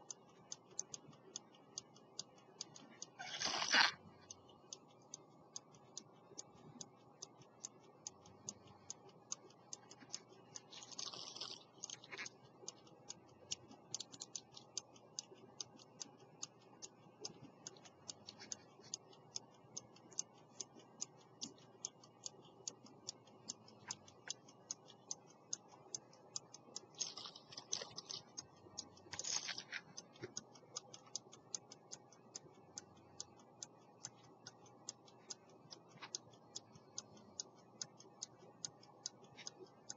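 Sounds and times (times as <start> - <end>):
pocket watch ticking: 0.0 - 39.9.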